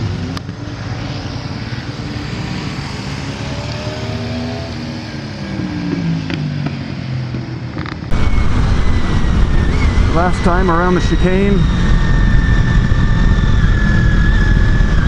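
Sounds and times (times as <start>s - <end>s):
motorcycle engine accelerating: 0.0s - 15.0s
steady low rumble: 8.1s - 15.0s.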